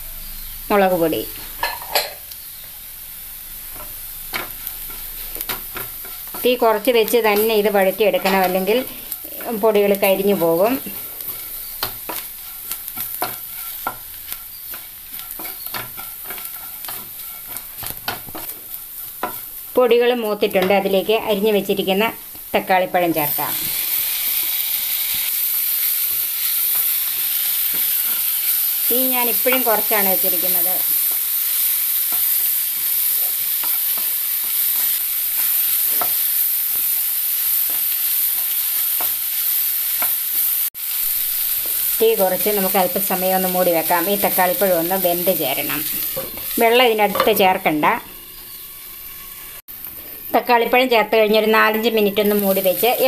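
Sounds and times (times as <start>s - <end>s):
onions sizzling in a pan: 0.0s - 53.0s
spatula scraping and tapping: 3.7s - 19.7s, 26.7s - 28.4s, 29.3s - 30.5s, 32.1s - 36.2s, 45.8s - 47.6s.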